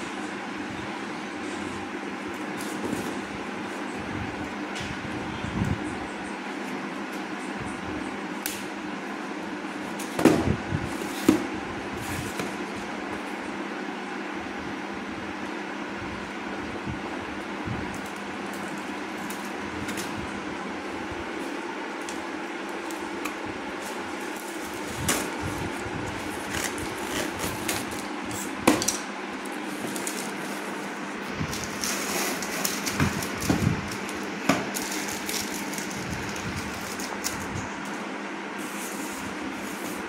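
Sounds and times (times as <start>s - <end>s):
steady hum: 0.0s - 40.0s
scissors snipping packing tape: 26.4s - 29.0s.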